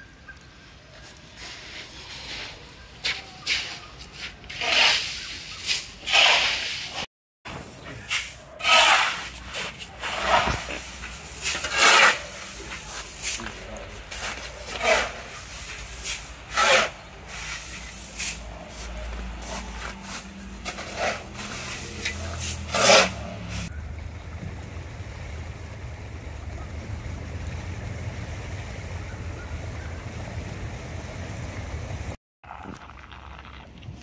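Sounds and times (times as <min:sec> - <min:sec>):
shovel scraping hailstones: 0:01.4 - 0:23.7.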